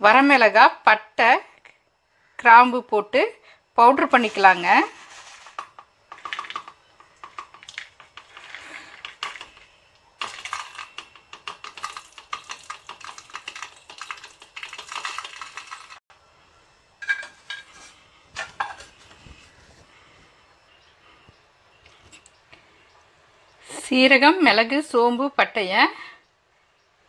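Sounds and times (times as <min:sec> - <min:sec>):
spices rattling into steel jar: 0:04.2 - 0:16.0.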